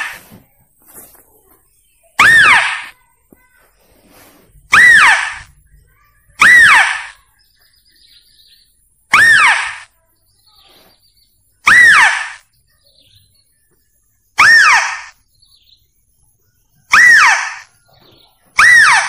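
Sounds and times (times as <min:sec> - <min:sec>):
animal lure call cry: 0:02.2 - 0:03.0, 0:04.7 - 0:07.3, 0:09.1 - 0:10.0, 0:11.6 - 0:12.5, 0:14.4 - 0:15.2, 0:16.9 - 0:17.8, 0:18.5 - 0:19.0.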